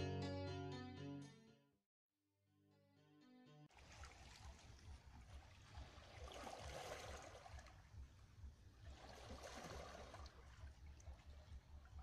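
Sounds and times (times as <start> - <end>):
small waves lapping on rocks: 3.8 - 12.0.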